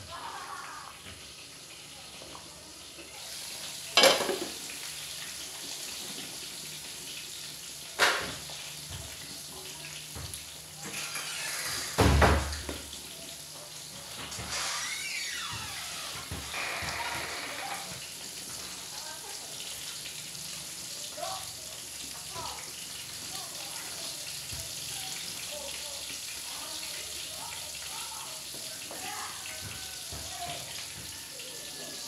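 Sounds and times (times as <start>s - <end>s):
steady hiss of cooking: 0.0s - 32.0s
cookware knocks: 4.0s - 4.6s.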